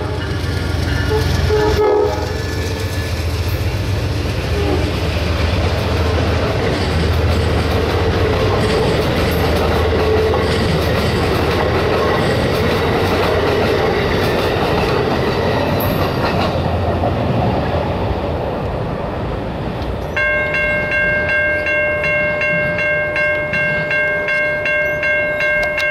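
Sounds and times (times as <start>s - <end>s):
crossing bell ringing: 0.0s - 2.1s, 20.0s - 25.9s
train wheels rumbling on rail: 0.0s - 25.9s.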